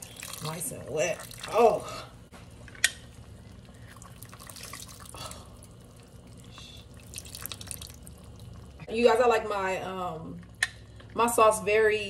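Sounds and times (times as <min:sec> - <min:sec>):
butter dripping and popping: 0:02.7 - 0:08.9.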